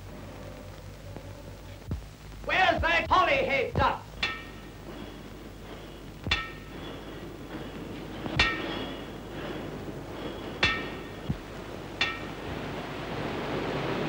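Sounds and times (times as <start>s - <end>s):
low hum: 0.0s - 14.0s
metal struck ringing: 4.1s - 12.8s.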